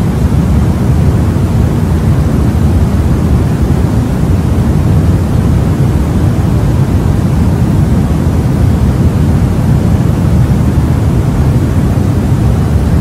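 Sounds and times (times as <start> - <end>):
white noise rush: 0.0 - 13.0.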